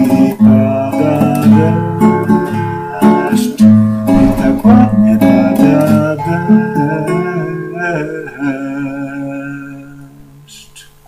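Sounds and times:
acoustic guitar strumming: 0:00.0 - 0:10.5
person singing: 0:00.0 - 0:10.9.

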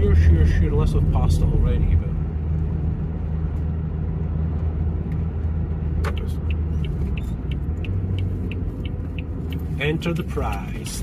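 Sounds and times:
car engine and road drone: 0:00.0 - 0:11.0
turn indicator ticking: 0:04.4 - 0:11.0.

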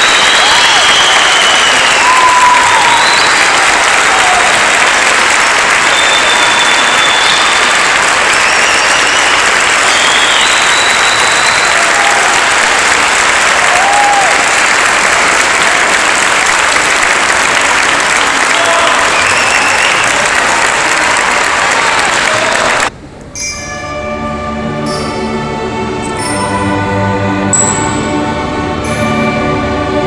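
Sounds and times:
crowd applauding: 0:00.0 - 0:22.9.

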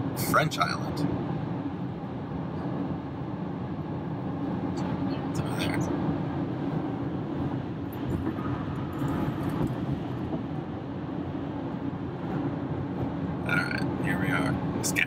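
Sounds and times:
car road and tyre noise: 0:00.0 - 0:15.0.

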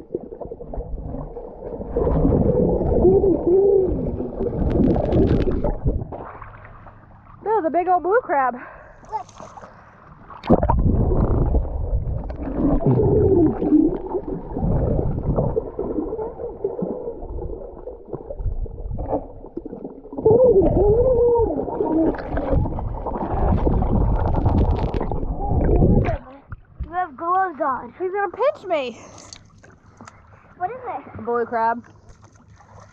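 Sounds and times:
muffled underwater gurgling: 0:00.0 - 0:06.5, 0:10.4 - 0:27.0.

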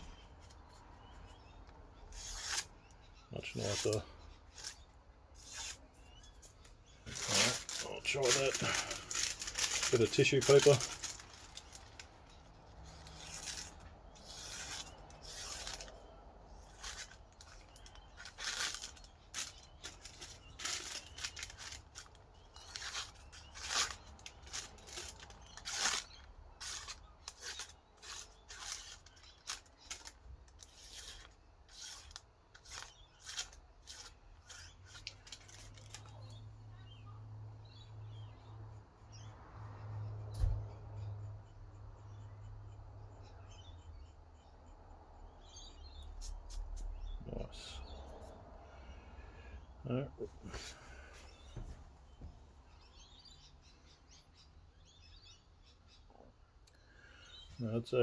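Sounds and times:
knife slicing tissue paper: 0:12.9 - 0:16.0, 0:16.7 - 0:36.0.

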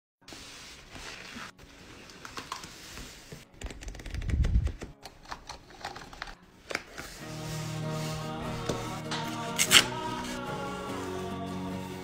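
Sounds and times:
paper rustling: 0:00.3 - 0:04.9.

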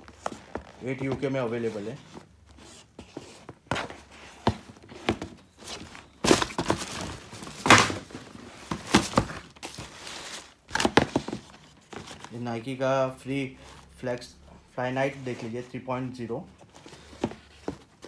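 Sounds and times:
thumps and knocks of shoe boxes: 0:00.0 - 0:12.3, 0:16.6 - 0:18.0
cardboard rustling: 0:00.0 - 0:12.6, 0:16.5 - 0:18.0.

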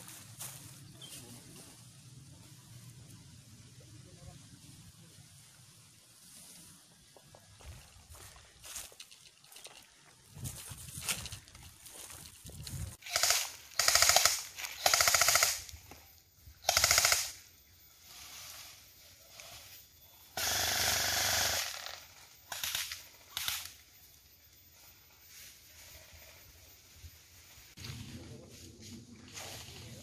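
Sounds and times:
airsoft guns firing bursts: 0:13.0 - 0:15.7, 0:16.6 - 0:17.4, 0:20.4 - 0:23.6
hiss: 0:17.9 - 0:23.7.

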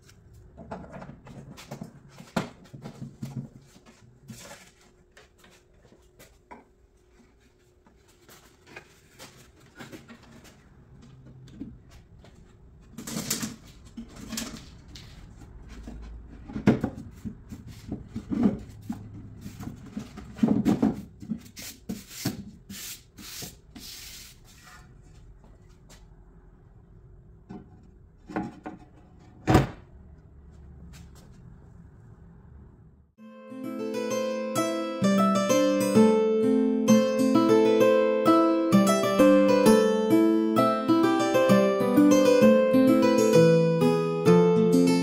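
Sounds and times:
wood knocking and scraping: 0:27.5 - 0:29.5.

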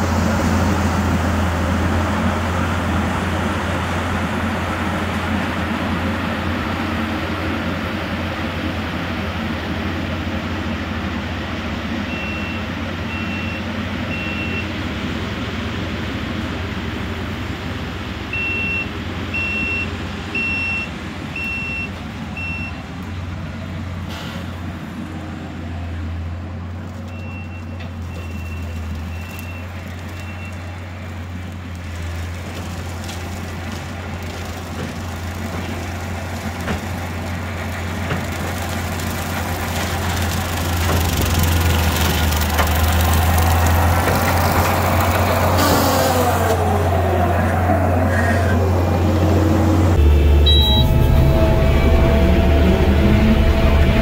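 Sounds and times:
skid steer engine drone: 0:00.0 - 0:54.0
backup alarm beeping: 0:18.4 - 0:22.8, 0:50.0 - 0:51.2.

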